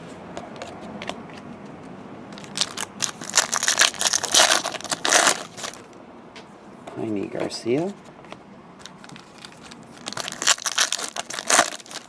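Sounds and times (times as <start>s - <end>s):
foil wrapper crinkling: 2.4s - 5.9s, 8.9s - 12.0s.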